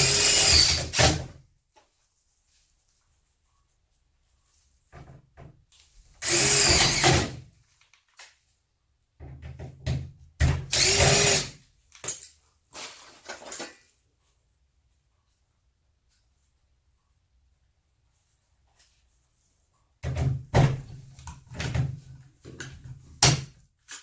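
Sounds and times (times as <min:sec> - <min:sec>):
cordless drill driving into steel: 0:00.0 - 0:01.3, 0:06.2 - 0:07.4, 0:10.7 - 0:11.6.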